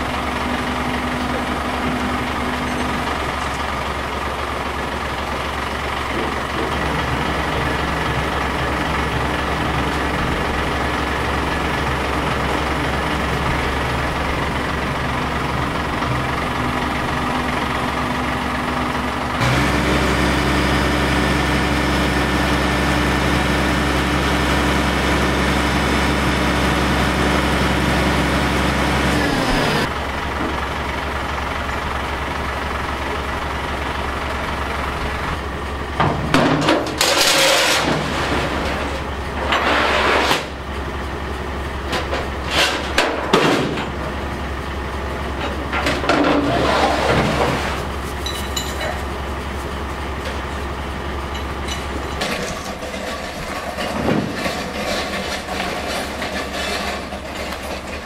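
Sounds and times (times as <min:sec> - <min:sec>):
truck engine idling: 0:00.0 - 0:58.0.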